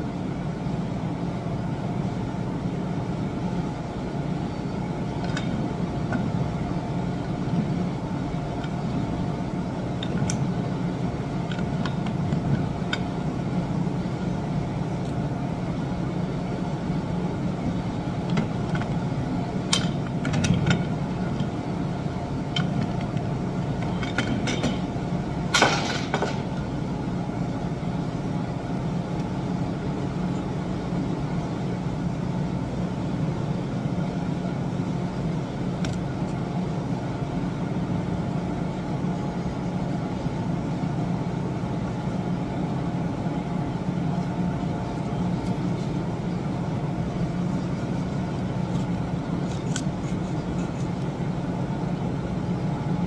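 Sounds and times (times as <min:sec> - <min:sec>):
low machinery hum: 0:00.0 - 0:53.0
metal clank: 0:25.5 - 0:26.5.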